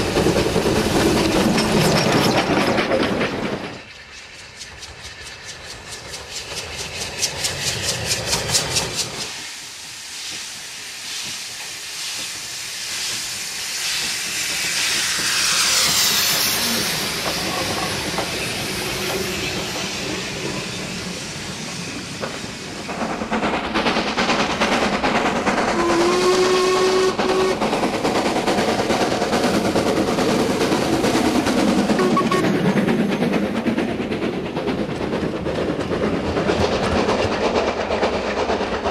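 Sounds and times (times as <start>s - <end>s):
train rumbling on rails: 0.0s - 38.9s
steam locomotive exhaust beating: 3.1s - 38.9s
steam hissing: 3.5s - 38.9s
steam whistle: 25.7s - 27.7s, 32.0s - 32.5s.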